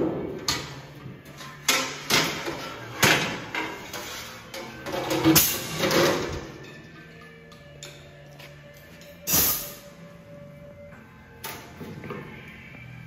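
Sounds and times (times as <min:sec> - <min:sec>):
metallic clanks and scrapes: 0:00.4 - 0:08.1, 0:09.0 - 0:09.9.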